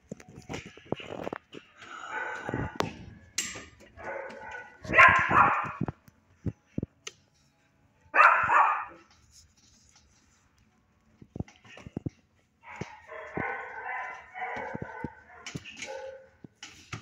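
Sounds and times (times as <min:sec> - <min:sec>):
dog barking: 0:02.0 - 0:02.8, 0:04.0 - 0:05.9, 0:08.2 - 0:09.1, 0:12.6 - 0:16.4.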